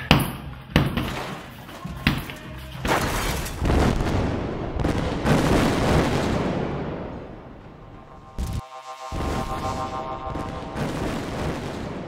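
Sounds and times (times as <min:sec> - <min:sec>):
music with sharp hits: 0:00.0 - 0:04.2, 0:07.9 - 0:12.0
rumbling explosions: 0:03.5 - 0:12.0.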